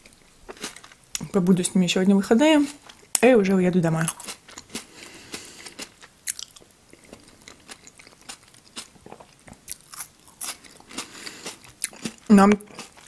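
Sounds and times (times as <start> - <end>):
person chewing food: 0.0 - 1.3, 4.1 - 13.0.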